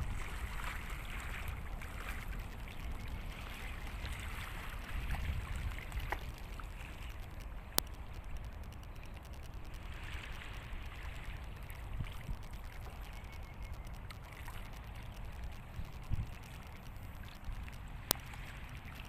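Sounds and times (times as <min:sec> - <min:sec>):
small waves lapping on rocks: 0:00.0 - 0:08.1
low steady rumble: 0:00.0 - 0:19.0.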